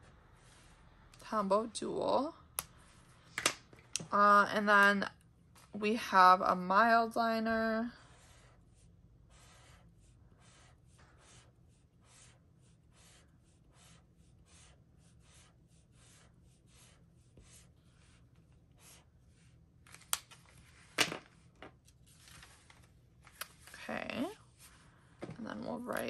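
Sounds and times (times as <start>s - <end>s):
highlighter scratching on paper: 8.0s - 19.5s.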